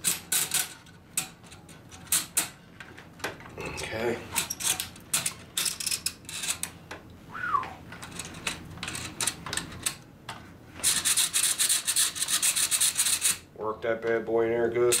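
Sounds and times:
fast rasping rubbing: 10.9 - 13.4.

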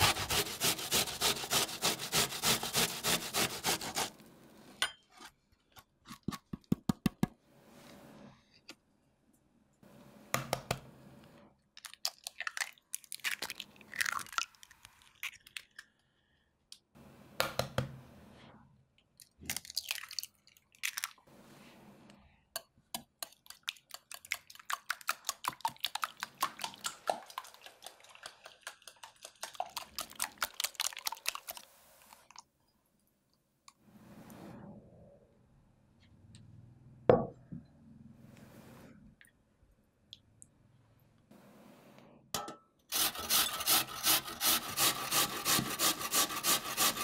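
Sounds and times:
eggs beaten in a bowl: 22.6 - 31.6
eggs cracking on a ceramic bowl: 23.0 - 31.5.

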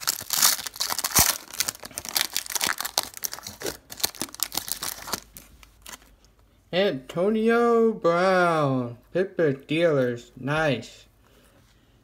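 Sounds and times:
foil wrapper tearing and crinkling: 0.0 - 6.0.

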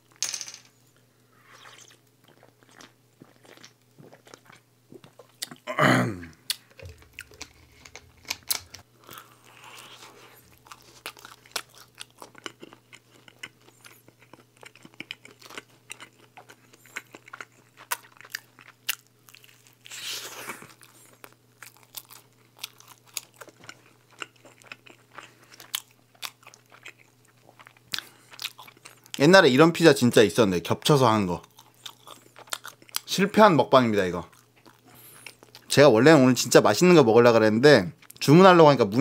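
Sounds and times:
chewing crunchy pizza: 1.5 - 5.7, 6.3 - 29.2, 31.4 - 33.1, 34.2 - 35.7.

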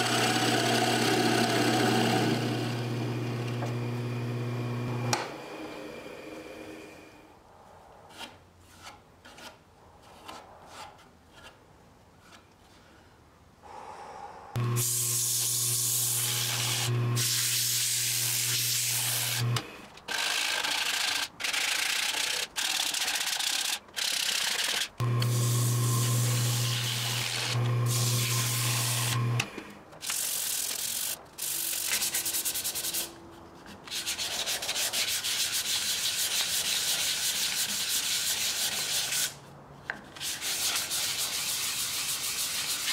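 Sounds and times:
steady motor hum: 0.0 - 5.2, 25.0 - 29.6
sandpaper rubbing spinning wood: 14.8 - 19.6, 30.1 - 33.1, 33.9 - 39.4, 40.2 - 42.9.

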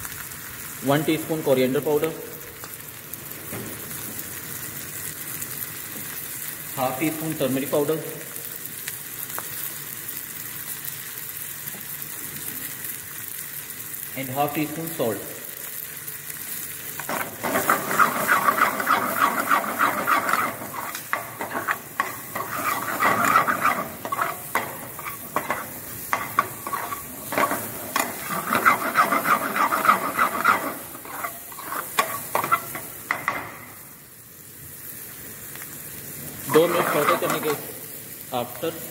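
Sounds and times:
hot oil sizzling: 0.0 - 38.9
ladle scraping metal pan: 17.0 - 33.4, 36.5 - 37.6.

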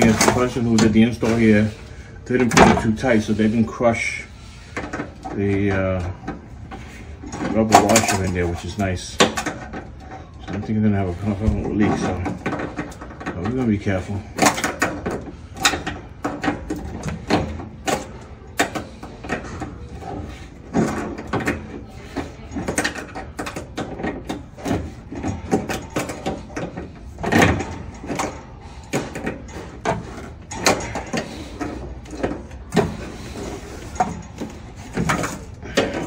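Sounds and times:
metal tools clicking and knocking: 7.2 - 33.1.

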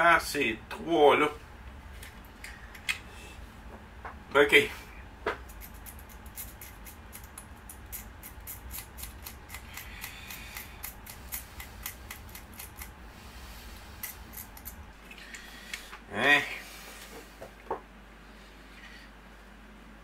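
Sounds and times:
hand tool scratching circuit board: 5.5 - 13.0.

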